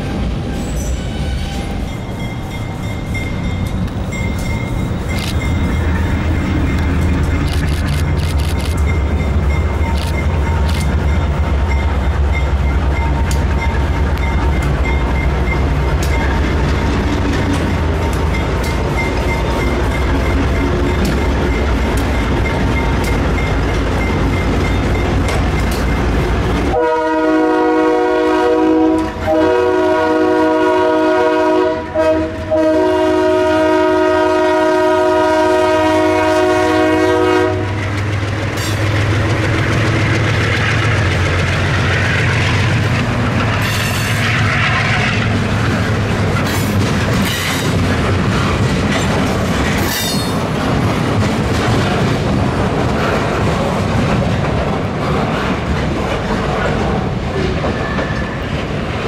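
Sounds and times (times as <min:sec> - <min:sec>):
diesel locomotive engine rumbling: 0:00.0 - 0:59.0
locomotive air horn blasts: 0:26.7 - 0:37.8.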